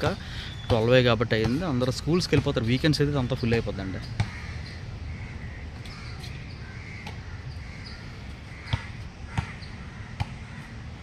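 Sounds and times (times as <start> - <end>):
basketball bouncing on hard court: 0.0 - 2.6, 8.6 - 10.4
birds calling: 0.0 - 11.0
outdoor background: 0.0 - 11.0.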